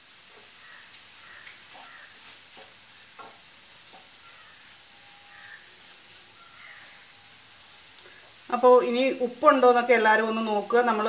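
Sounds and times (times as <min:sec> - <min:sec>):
food sizzling in a pan: 0:00.0 - 0:11.0
spatula scraping and tapping pan: 0:00.2 - 0:04.6.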